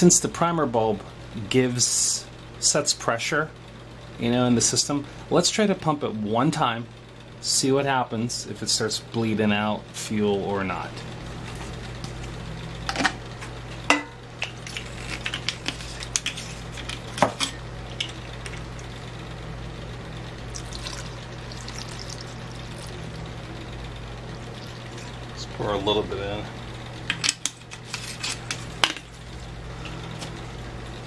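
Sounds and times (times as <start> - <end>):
steady low hum: 0.0 - 31.0
fuel trickling through funnel: 20.5 - 23.0, 24.4 - 25.1.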